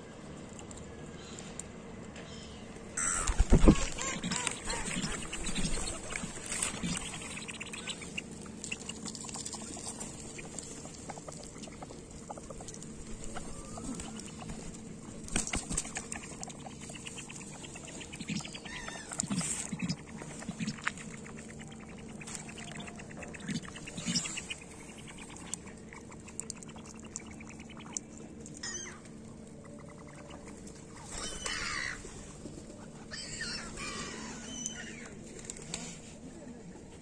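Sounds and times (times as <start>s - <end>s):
short low bird calls: 2.3s - 6.0s
birds pecking on gravel: 2.7s - 37.0s.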